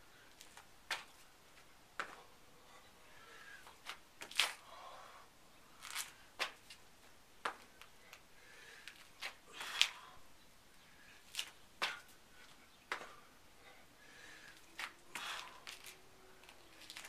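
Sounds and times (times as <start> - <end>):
hands and shoes slapping concrete: 11.4 - 12.1.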